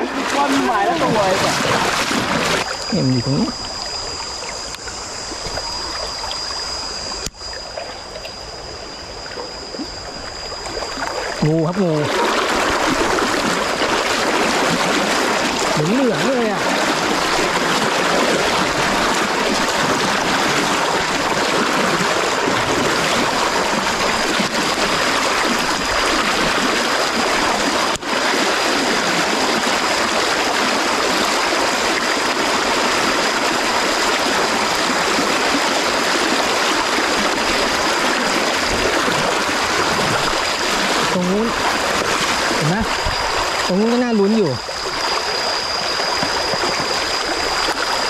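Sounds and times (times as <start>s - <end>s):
creek rushing over stones: 0.0s - 2.8s
thin high tone: 0.0s - 27.6s, 37.5s - 48.0s.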